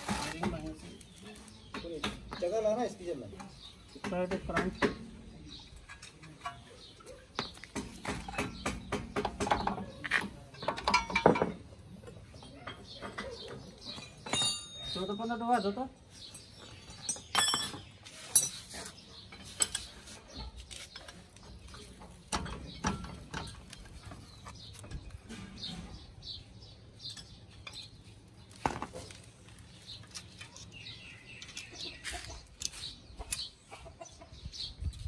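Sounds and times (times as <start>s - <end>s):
birds chirping: 0.0s - 35.0s
metal tools clinking on wheel hub: 5.5s - 7.6s, 9.6s - 25.7s, 27.0s - 28.1s.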